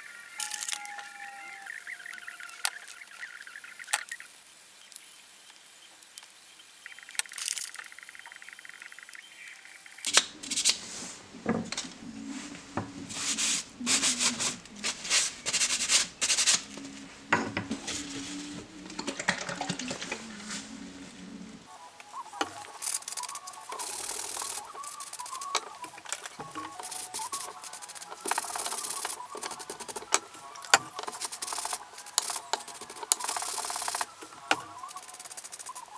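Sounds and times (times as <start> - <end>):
cloth wiping wooden blocks: 12.0 - 18.8, 22.2 - 35.9.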